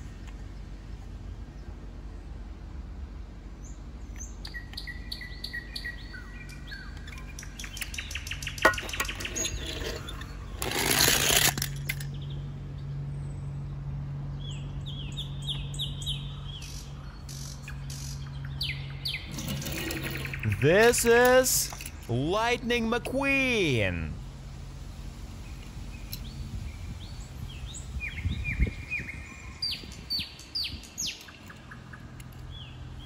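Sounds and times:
small birds chirping: 3.6 - 10.6, 12.1 - 20.6, 25.4 - 33.0.

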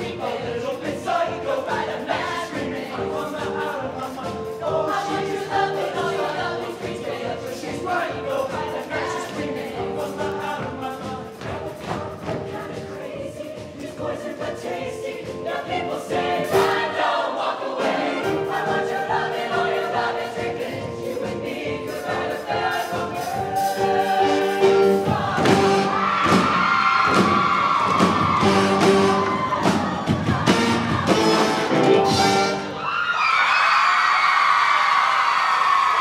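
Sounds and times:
drums keeping a beat: 0.0 - 16.9, 18.3 - 32.5
mixed choir singing: 0.0 - 32.8
live band playing: 23.0 - 32.9.

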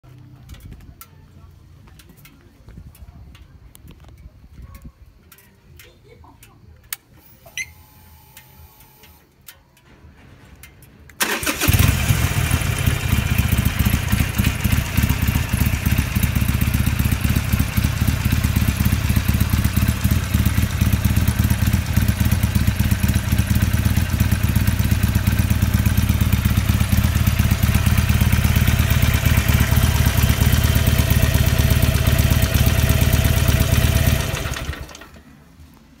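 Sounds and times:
motorcycle engine starting: 6.8 - 35.8
motorcycle engine idling: 11.2 - 35.5.

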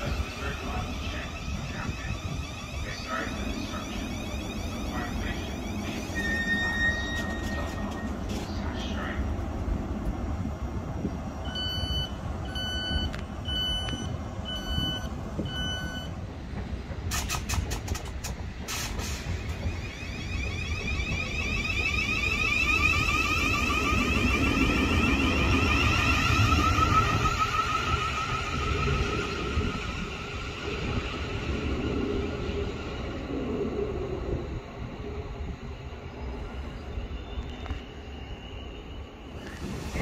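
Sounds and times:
electric train motors whining: 0.0 - 40.0
electronic beeps: 0.1 - 8.5, 11.5 - 16.1.

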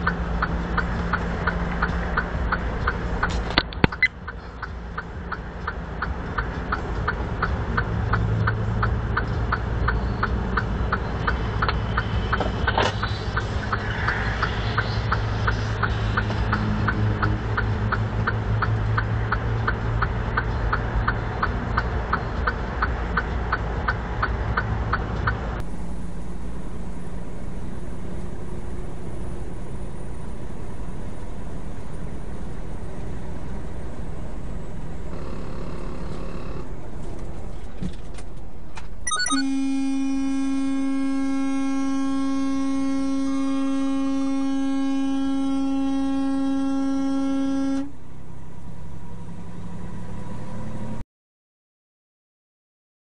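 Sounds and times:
truck cab road noise: 0.0 - 51.0
truck horn long blast: 25.6 - 36.6, 39.1 - 48.2.

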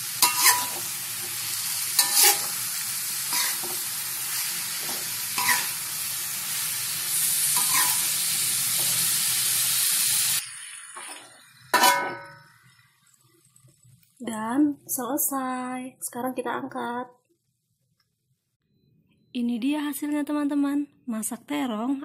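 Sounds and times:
food sizzling in a wok: 0.0 - 15.0
metal spatula scraping a wok: 0.2 - 6.0, 7.1 - 9.1, 11.0 - 12.5.

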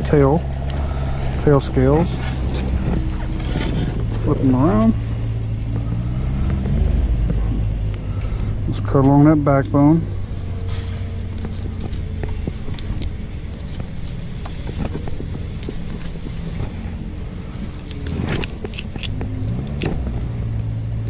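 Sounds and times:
low motor hum: 0.0 - 21.0
knife scraping fish: 11.3 - 19.8.

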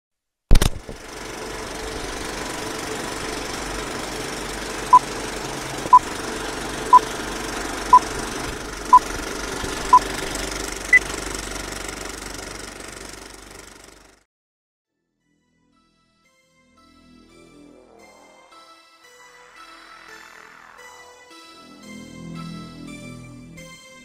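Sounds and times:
film projector rattling: 0.6 - 14.2.

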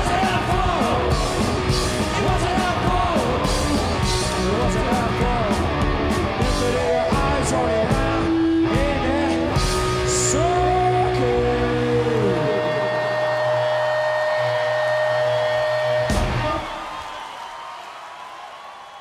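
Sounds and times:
drum kit with cymbal crashes: 0.0 - 8.2
person singing lead vocals: 0.0 - 16.7
electric guitar: 0.0 - 16.8.

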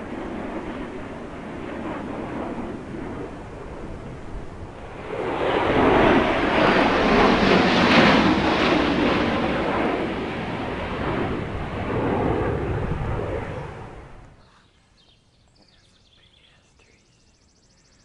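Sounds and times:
jet aircraft roaring overhead: 0.0 - 14.4.

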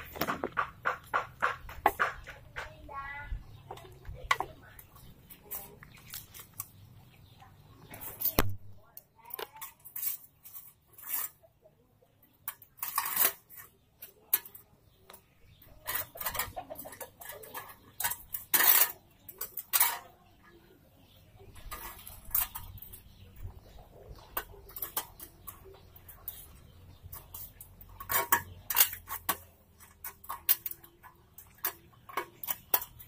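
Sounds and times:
metallic clinks and scrapes: 9.2 - 11.5, 12.4 - 20.5, 21.4 - 33.0.

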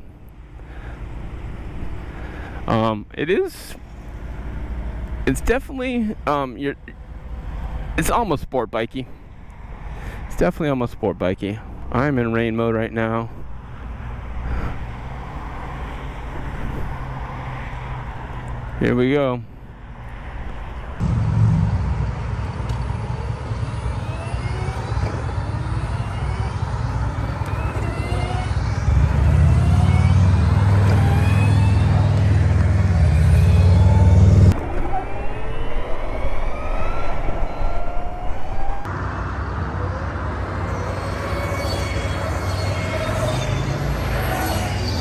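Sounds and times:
wind and road noise: 0.0 - 45.0
wind rushing on microphone: 13.3 - 17.4
electric motor whine: 22.7 - 38.9.

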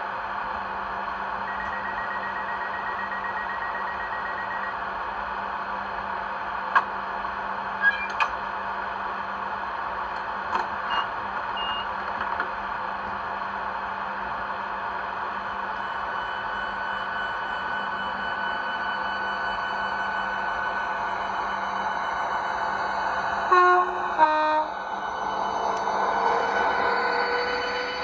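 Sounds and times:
steady train hum: 0.0 - 28.0
high beeping: 16.1 - 28.0.

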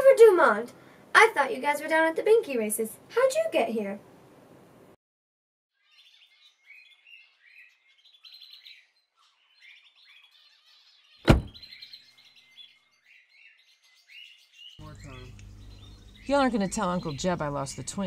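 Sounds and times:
small birds chirping: 5.7 - 18.0
truck door shutting: 11.2 - 11.6.

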